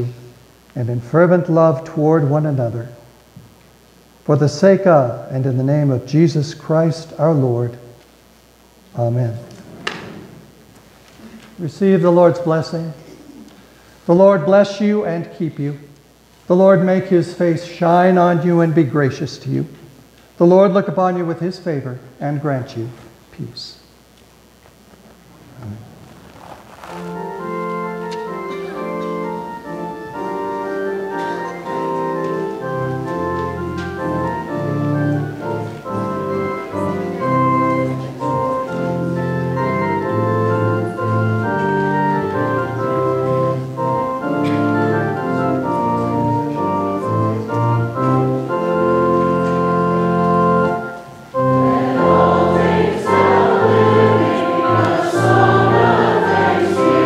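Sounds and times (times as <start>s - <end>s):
church organ playing chords: 0.0s - 57.0s
congregation singing a hymn: 26.9s - 57.0s.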